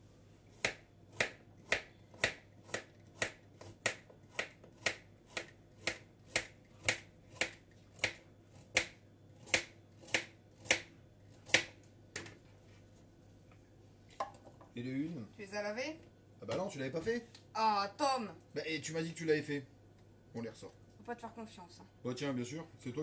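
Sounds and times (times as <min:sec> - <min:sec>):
knife chopping on cutting board: 0:00.6 - 0:11.8.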